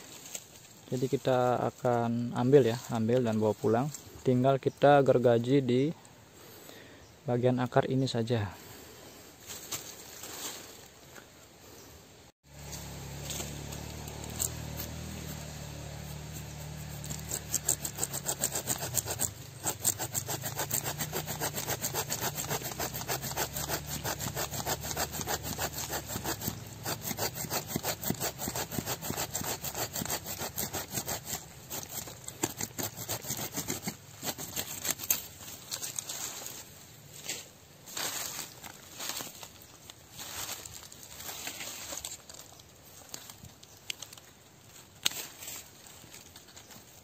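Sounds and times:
hand saw cutting root: 12.5 - 36.1.

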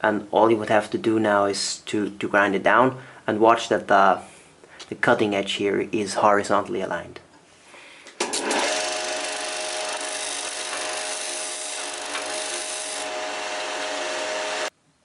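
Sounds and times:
sander motor hum: 8.4 - 14.7
sander grinding steel hiss: 8.5 - 14.7.

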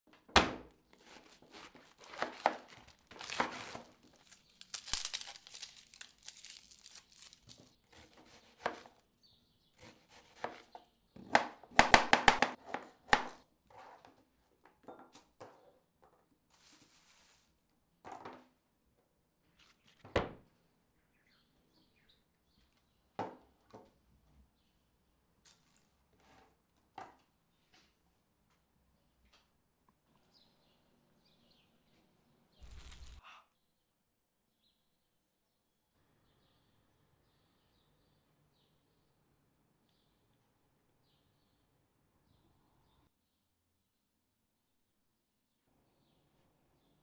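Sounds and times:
knife chopping on cutting board: 1.0 - 2.6, 7.9 - 8.9, 9.8 - 13.4
knife crunching through cabbage: 1.0 - 9.0, 32.6 - 33.2.

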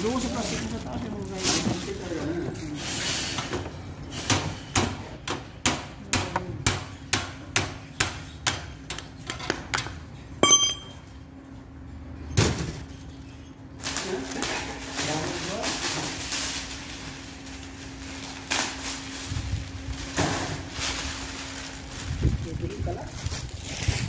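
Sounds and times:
metallic ringing knock: 10.4 - 11.1.

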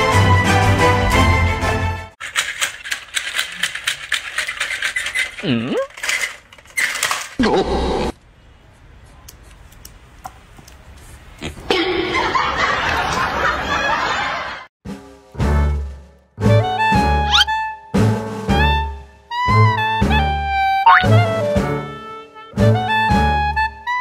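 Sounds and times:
background music: 0.0 - 2.2, 14.9 - 24.0
toy dinosaur clicking: 2.2 - 6.4.

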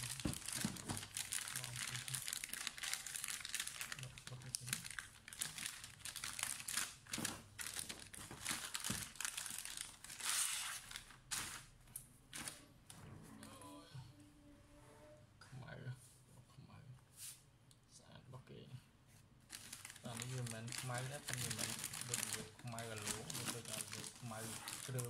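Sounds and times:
plastic sleeve crinkling: 0.0 - 11.7, 19.5 - 25.0.

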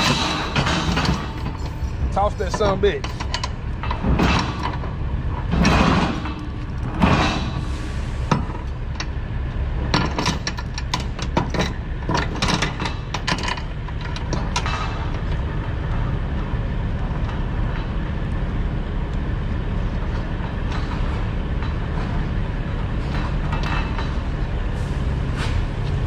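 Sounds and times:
low rumble: 0.0 - 26.0.

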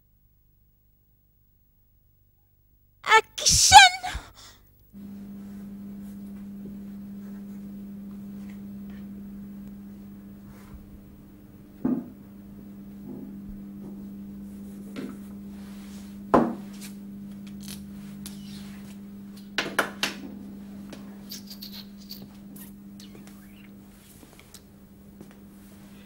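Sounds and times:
steady low hum: 4.1 - 26.0
marker squeaking: 21.3 - 23.7.

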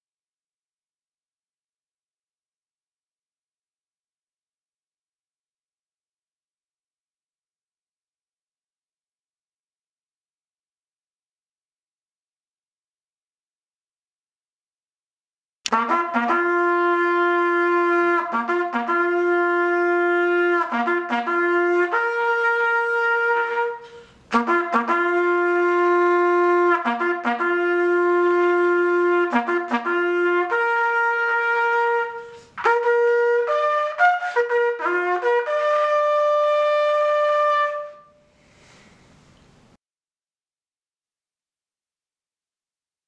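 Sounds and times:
solo trumpet bugle call: 15.7 - 38.3.

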